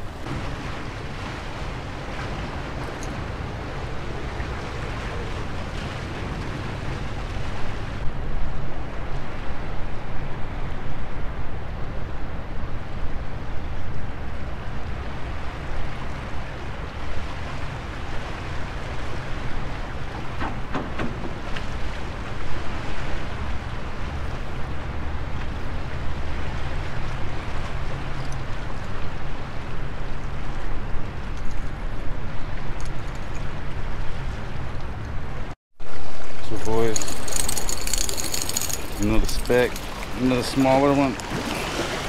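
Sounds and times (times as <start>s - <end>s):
small waves washing against rocks: 36.2s - 42.0s.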